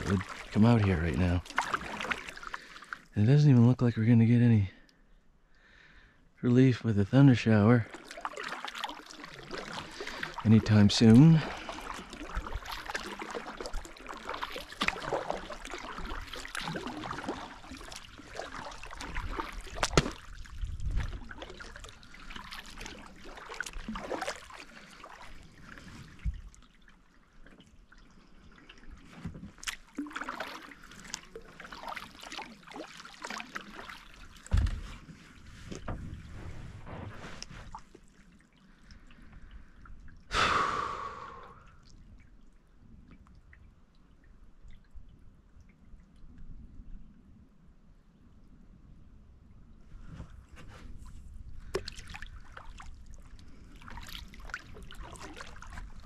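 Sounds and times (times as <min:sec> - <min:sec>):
water dripping off paddle blades: 0:00.0 - 0:03.1, 0:07.9 - 0:26.6, 0:28.6 - 0:35.1, 0:51.6 - 0:56.0
paddle splashing water: 0:00.0 - 0:03.2, 0:07.2 - 0:42.4, 0:49.9 - 0:56.0.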